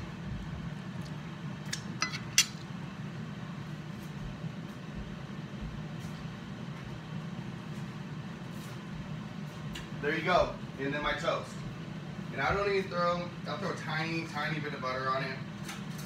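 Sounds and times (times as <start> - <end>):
kitchenware clinking: 2.0 - 2.6.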